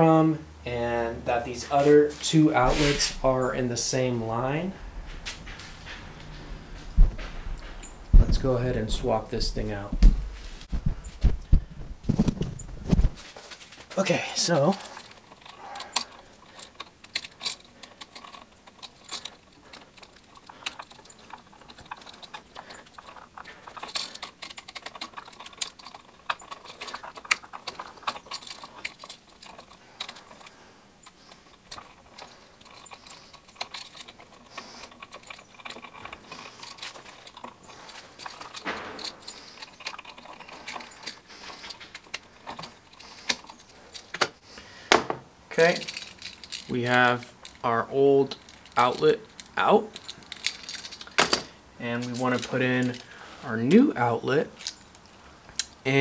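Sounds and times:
wire ends knocking and rubbing: 2.6 - 13.3.

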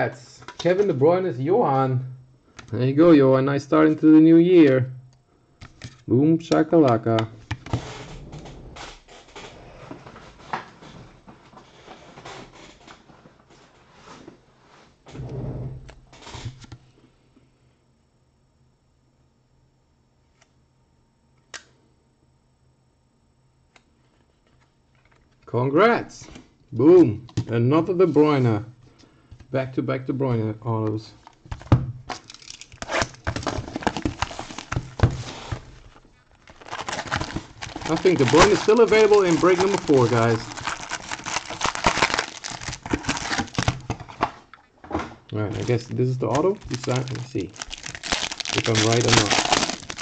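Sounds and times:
plastic wrap crinkling and tearing: 31.5 - 44.2, 45.5 - 50.0
cards and packaging rustling: 31.5 - 44.4, 45.4 - 50.0.

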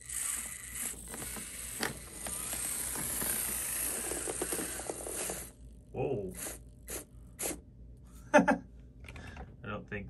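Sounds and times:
electric motor and gears whining: 0.0 - 6.6.

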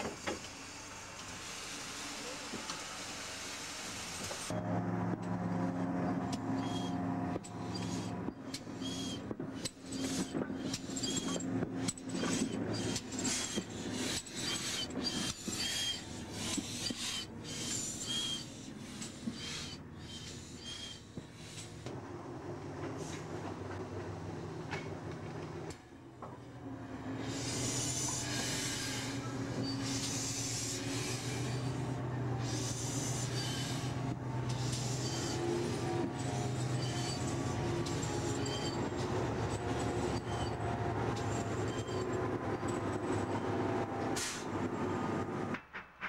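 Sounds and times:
steam hiss: 0.0 - 4.5, 27.2 - 35.8
steam locomotive exhaust beats: 4.5 - 22.0, 26.8 - 46.0.

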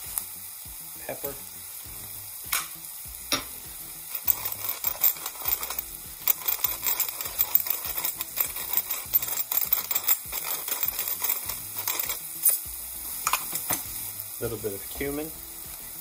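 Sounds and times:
onion and garlic sizzling in oil: 0.0 - 16.0.

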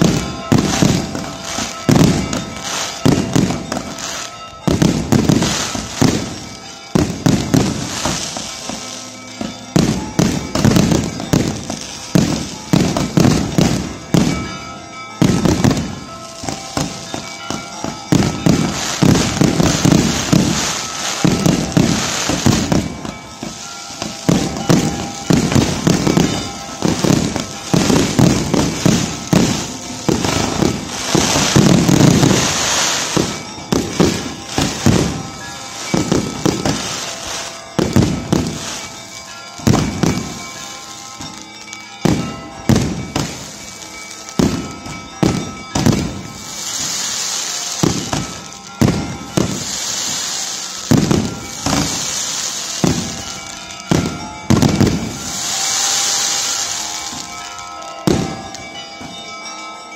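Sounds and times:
firework shell bursts: 0.0 - 59.4
firework bangs: 0.0 - 59.5
fireworks hissing and crackling: 0.0 - 59.9.

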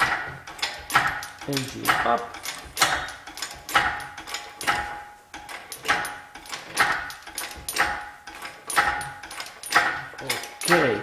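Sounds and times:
engine crane clanking and rattling: 0.0 - 11.0.

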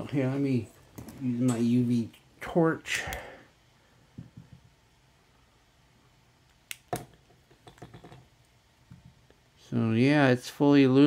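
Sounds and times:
light handling noises: 0.1 - 2.3.

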